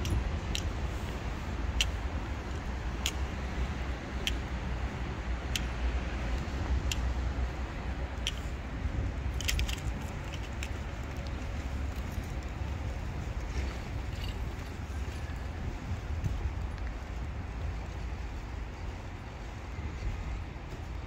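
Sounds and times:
small clicks: 0.0 - 8.6, 9.3 - 15.3
footsteps on cobblestones: 0.0 - 21.0.

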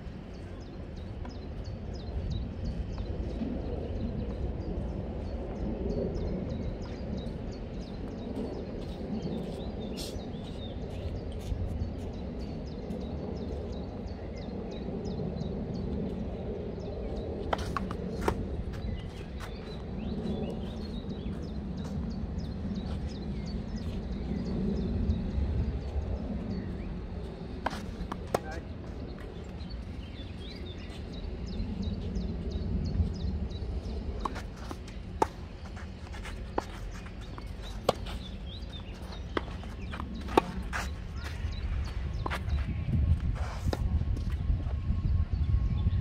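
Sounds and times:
low outdoor rumble: 0.0 - 46.0
tennis balls struck with rackets: 27.6 - 28.7, 34.2 - 41.4.

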